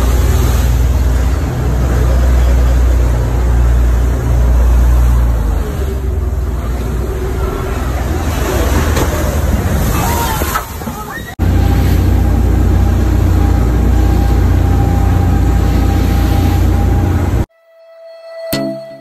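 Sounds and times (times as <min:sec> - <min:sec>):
heavy low rumble: 0:00.0 - 0:10.1, 0:10.7 - 0:17.5
breaking seawater rushing: 0:00.0 - 0:17.5
wind: 0:00.0 - 0:17.5.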